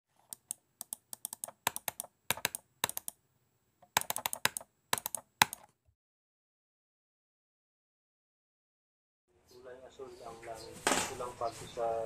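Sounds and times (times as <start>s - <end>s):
computer keyboard typing: 0.2s - 3.2s, 3.8s - 5.7s.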